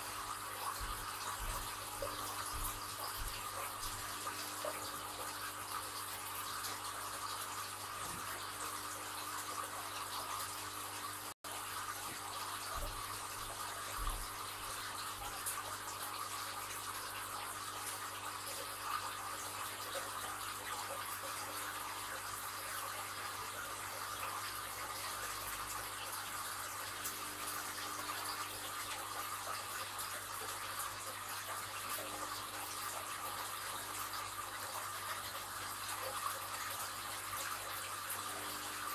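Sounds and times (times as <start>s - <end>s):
bubbling water from filter: 0.0s - 38.9s.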